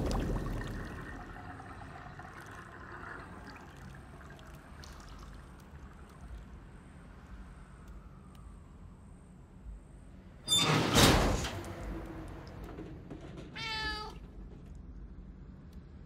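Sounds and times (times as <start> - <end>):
water trickling: 0.0 - 7.5
light water drips: 0.0 - 8.7.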